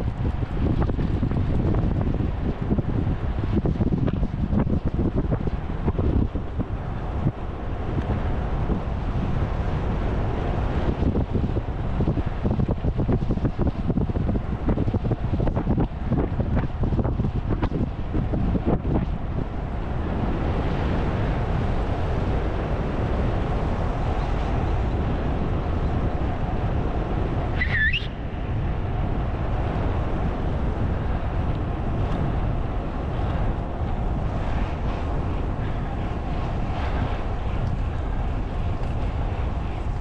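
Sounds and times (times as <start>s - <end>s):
low road rumble: 0.0s - 40.0s
wind rushing over microphone: 0.0s - 40.0s
brief high chirp: 27.6s - 28.1s.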